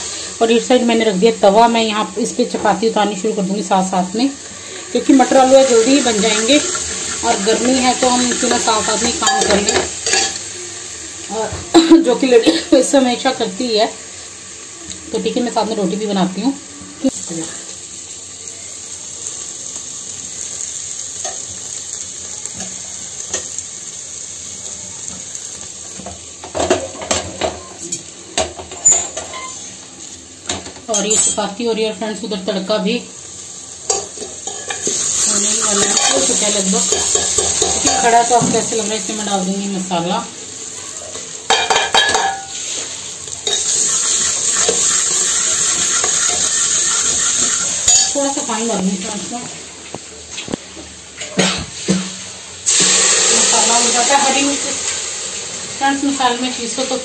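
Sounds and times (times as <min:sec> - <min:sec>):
masala sizzling in oil: 0:00.0 - 0:57.0
utensils clattering against pans: 0:05.3 - 0:10.5, 0:26.0 - 0:29.8, 0:30.5 - 0:31.5, 0:35.6 - 0:38.7, 0:41.5 - 0:48.4.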